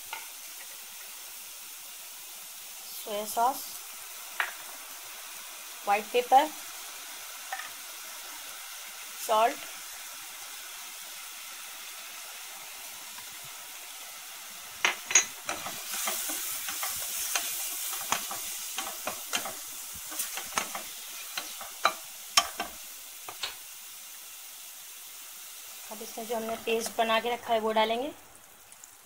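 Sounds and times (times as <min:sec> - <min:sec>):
onions sizzling in oil: 0:00.0 - 0:29.0
spoon scraping pan: 0:14.8 - 0:23.6, 0:26.0 - 0:27.1.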